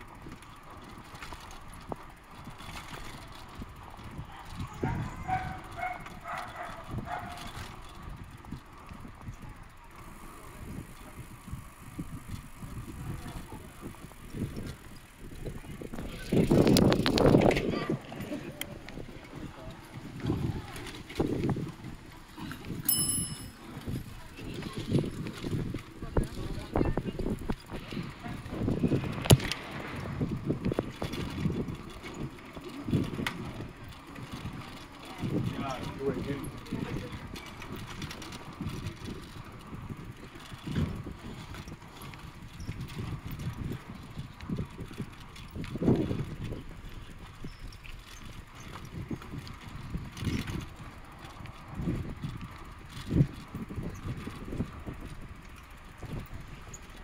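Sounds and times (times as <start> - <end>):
bicycle rattle: 0.0 - 57.0
tyre noise on road: 0.0 - 57.0
wind on microphone: 0.1 - 57.0
bicycle bell ringing: 22.8 - 24.0.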